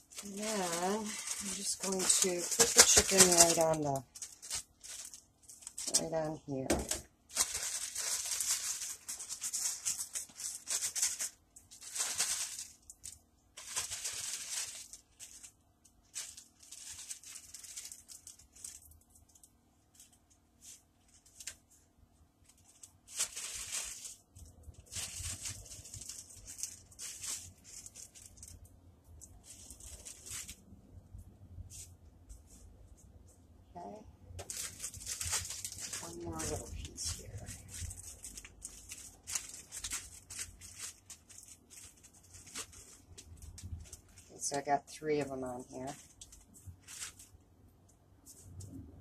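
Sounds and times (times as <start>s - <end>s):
plastic bag crinkling: 0.0s - 30.8s, 33.9s - 47.5s.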